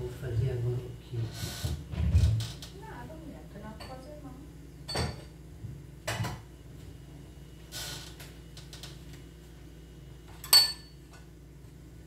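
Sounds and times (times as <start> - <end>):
dish clinking set down: 4.9 - 5.3, 10.3 - 11.0.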